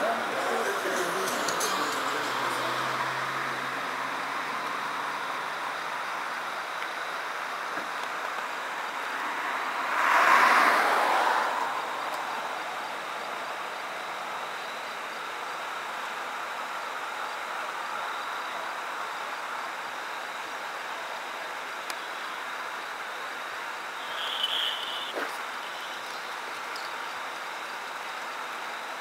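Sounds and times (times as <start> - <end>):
roadside traffic: 0.0 - 29.0
vehicle passing close by: 9.1 - 12.6.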